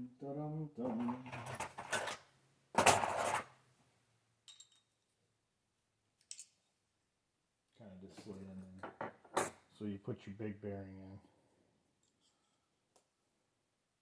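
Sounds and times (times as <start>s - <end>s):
faint clicks of small parts: 6.2s - 6.8s, 12.0s - 13.1s.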